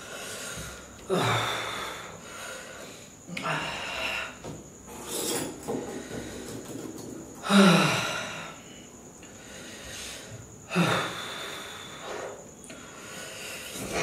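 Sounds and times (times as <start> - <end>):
man panting: 0.0 - 2.8.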